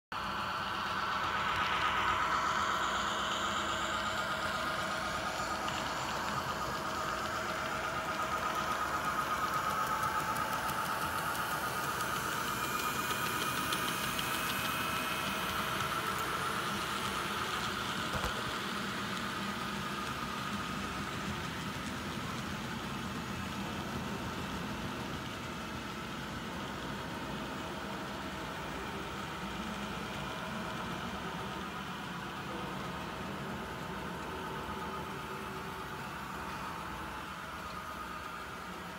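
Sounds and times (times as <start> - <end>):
model train wheels clicking: 0.2 - 38.9
small electric motors whining: 1.2 - 24.0.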